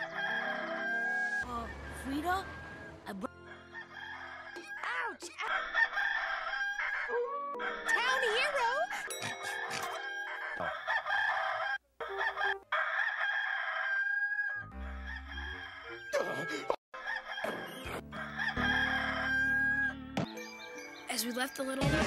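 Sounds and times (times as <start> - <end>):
rooster crowing: 0.0 - 2.0, 2.6 - 8.2, 9.3 - 16.2, 17.0 - 20.0.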